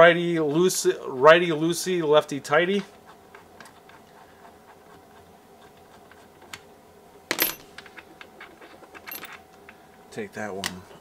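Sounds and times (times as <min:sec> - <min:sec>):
metal tools clattering on bench: 0:07.3 - 0:09.4.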